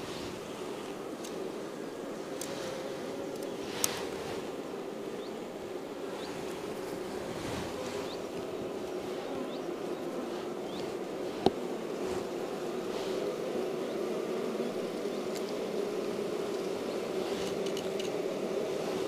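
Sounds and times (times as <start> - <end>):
honeybees buzzing: 0.0 - 19.0
hive tool knocking on wooden frames: 11.4 - 11.6.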